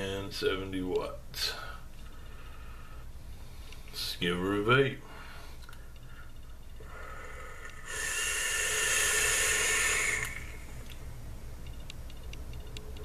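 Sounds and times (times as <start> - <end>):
vape atomizer hissing: 6.8 - 11.0.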